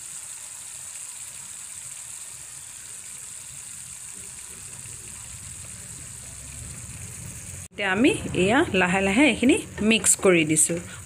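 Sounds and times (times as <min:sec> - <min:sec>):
gravy sizzling in a pan: 0:00.0 - 0:11.0
low hum: 0:04.2 - 0:11.0.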